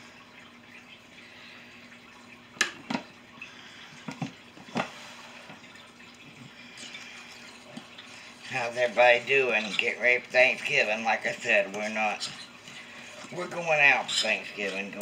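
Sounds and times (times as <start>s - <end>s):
low steady hum: 0.0s - 15.0s
stirring: 4.1s - 15.0s.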